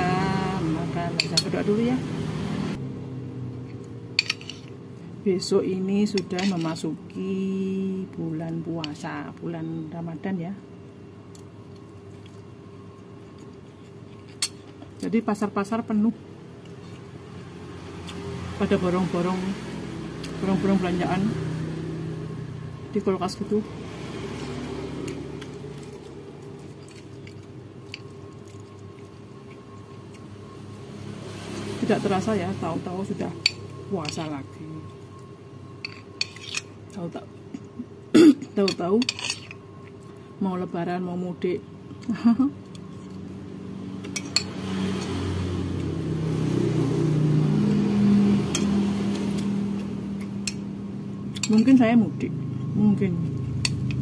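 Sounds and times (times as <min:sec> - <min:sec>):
vehicle engine passing: 0:00.0 - 0:04.2, 0:17.0 - 0:26.8, 0:30.0 - 0:35.6, 0:43.2 - 0:54.0
low steady hum: 0:00.0 - 0:54.0.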